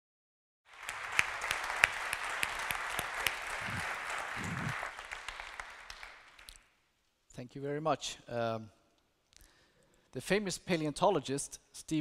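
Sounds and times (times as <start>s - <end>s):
audience applauding: 0.7s - 6.7s.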